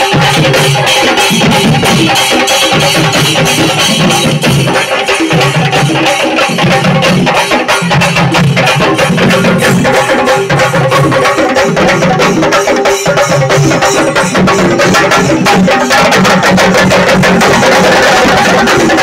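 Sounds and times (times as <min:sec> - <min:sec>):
drums beaten in fast roll: 0:00.0 - 0:19.0.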